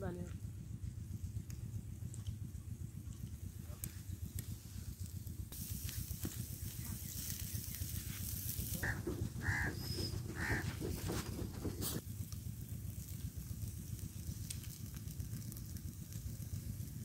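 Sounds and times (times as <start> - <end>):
hiss and crackle: 0.2 - 17.0
wind rumbling on microphone: 0.5 - 12.0
animal calls: 8.7 - 12.0.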